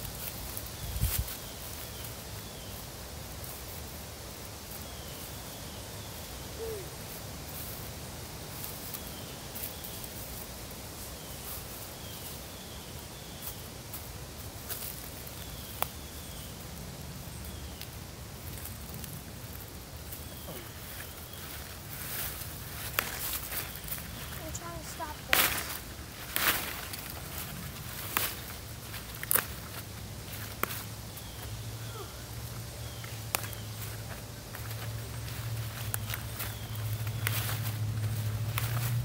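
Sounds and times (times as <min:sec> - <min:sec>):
dry leaves rustling and crackling: 0:00.0 - 0:39.0.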